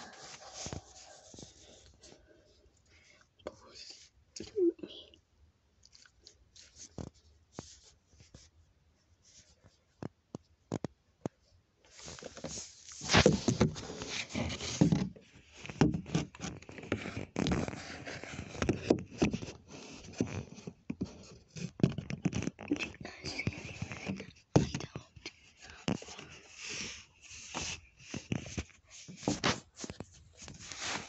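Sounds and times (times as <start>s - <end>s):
phone rubbing on fabric and wood: 0.0s - 2.1s, 11.9s - 22.6s, 25.8s - 31.0s.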